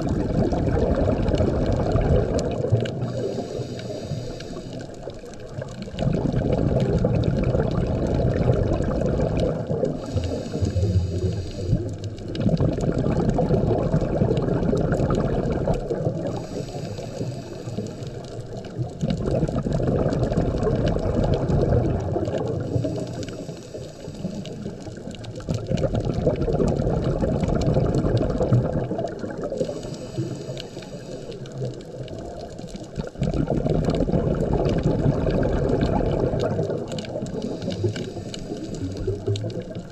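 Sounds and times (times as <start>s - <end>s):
exhaust bubbles bubbling: 0.0s - 39.9s
regulator hissing inhalation: 3.0s - 5.2s, 10.0s - 12.0s, 16.2s - 18.4s, 22.6s - 24.8s, 29.6s - 31.6s, 37.3s - 39.2s.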